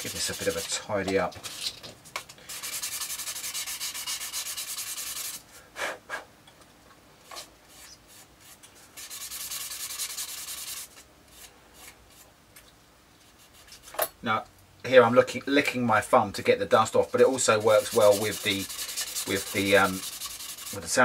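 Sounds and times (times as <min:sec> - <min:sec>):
sanding stick rubbing plastic: 0:00.0 - 0:00.8, 0:02.5 - 0:05.4, 0:07.7 - 0:12.0, 0:16.7 - 0:21.0.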